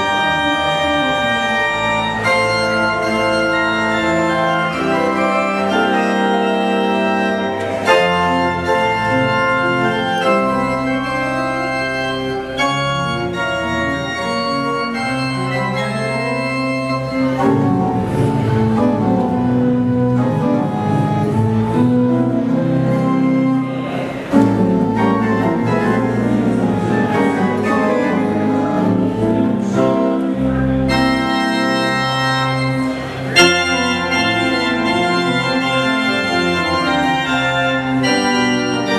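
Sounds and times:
pipe organ chords: 0:00.0 - 0:38.9.

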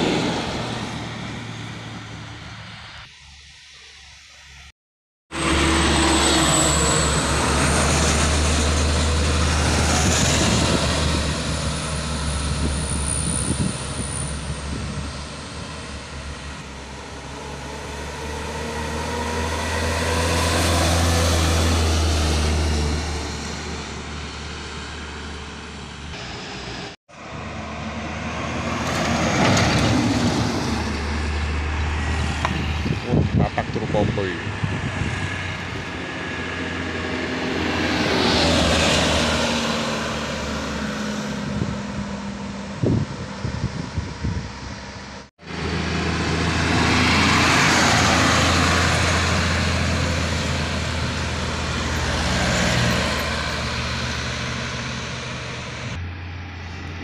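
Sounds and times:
diesel truck engines labouring: 0:00.0 - 0:04.0, 0:05.3 - 0:57.0.

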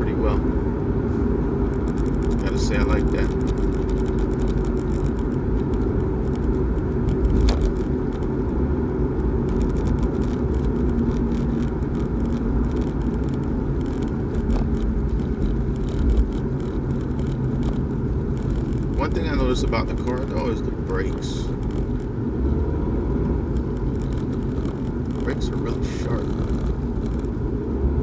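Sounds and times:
car engine and road noise: 0:00.0 - 0:28.0.

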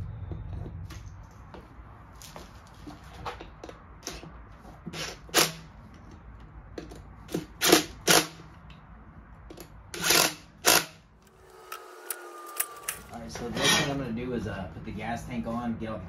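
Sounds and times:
socket tool bursts on wheel nuts: 0:07.3 - 0:08.5, 0:09.9 - 0:13.1.

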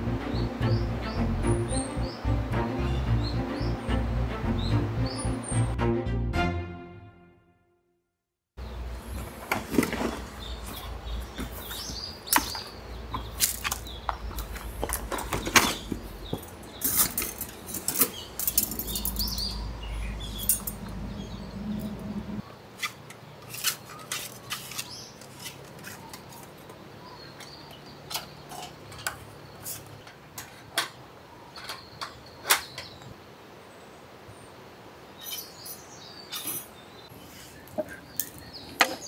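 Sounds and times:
light metallic clicks and clinks: 0:16.4 - 0:19.6, 0:20.4 - 0:21.0.

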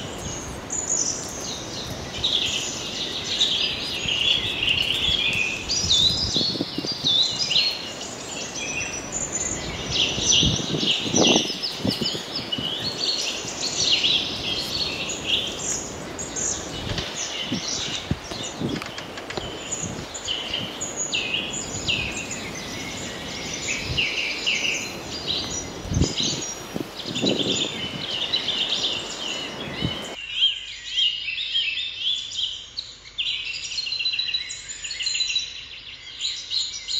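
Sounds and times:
outdoor background noise: 0:00.0 - 0:36.9
small birds chirping: 0:00.0 - 0:36.9.

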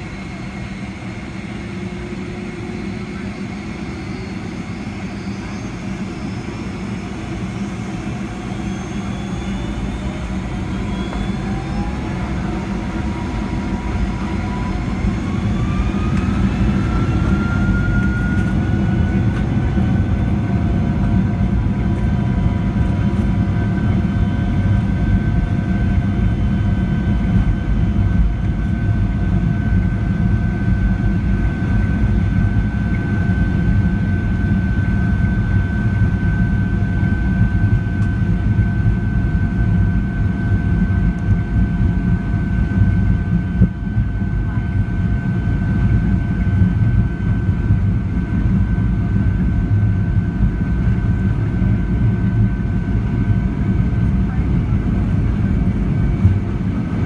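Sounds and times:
jet engine whine rising: 0:00.0 - 0:57.0.

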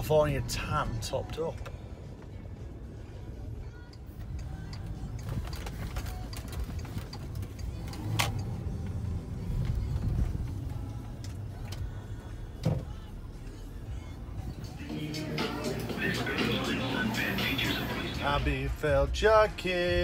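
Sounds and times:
car engine and road noise: 0:00.0 - 0:20.0.

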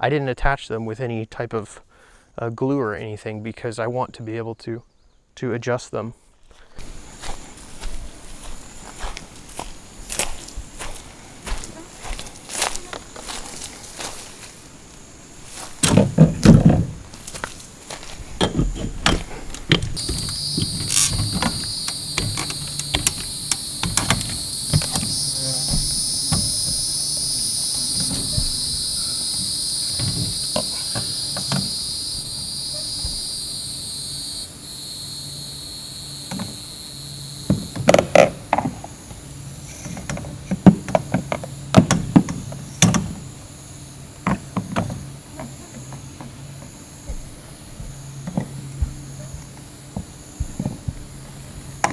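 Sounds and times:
insects buzzing: 0:06.8 - 0:51.9.

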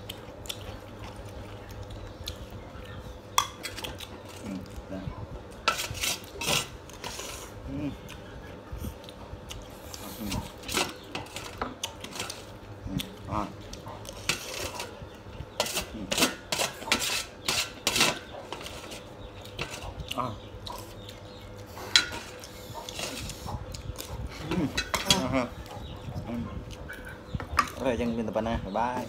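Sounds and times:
metal utensils scraping metal tray: 0:05.7 - 0:07.5, 0:15.6 - 0:19.0
low grunt-like sounds: 0:07.5 - 0:08.1.

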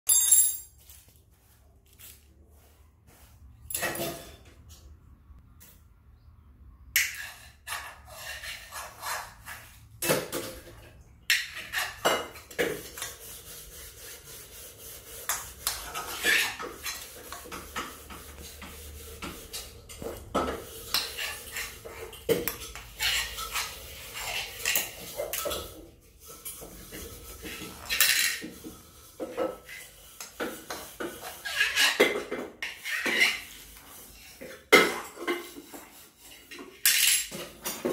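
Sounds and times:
metal spoon scraping in wok: 0:07.0 - 0:09.8, 0:15.3 - 0:28.4, 0:30.7 - 0:36.9.

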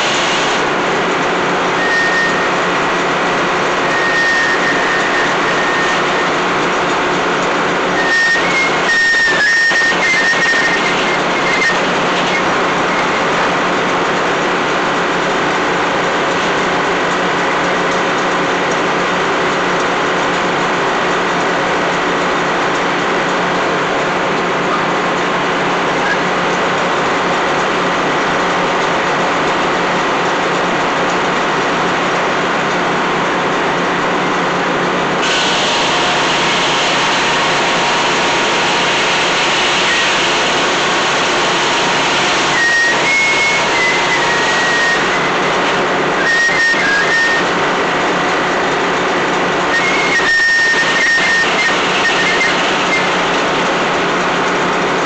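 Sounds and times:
saw blade cutting log: 0:00.0 - 0:18.3, 0:35.2 - 0:54.0
circular saw blade droning: 0:00.0 - 0:18.8, 0:34.6 - 0:55.0.

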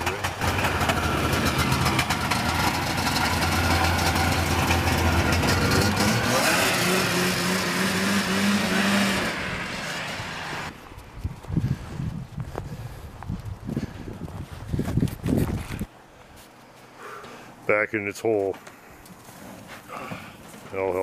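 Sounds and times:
snowmobile engine revving: 0:00.0 - 0:10.8.

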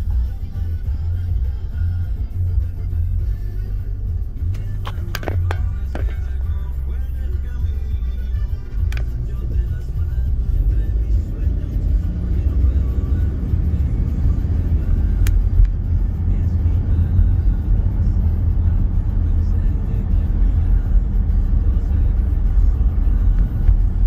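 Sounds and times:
car road and engine rumble: 0:00.0 - 0:24.0
sharp click: 0:04.4 - 0:06.4, 0:15.1 - 0:15.8.

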